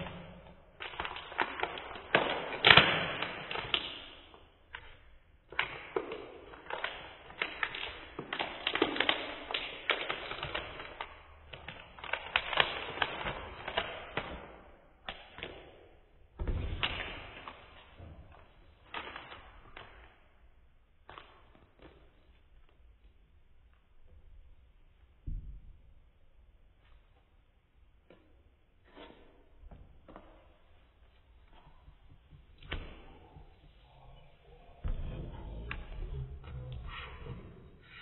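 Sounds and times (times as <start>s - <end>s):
plastic wrapper crinkling: 0.8s - 4.0s, 5.5s - 14.4s.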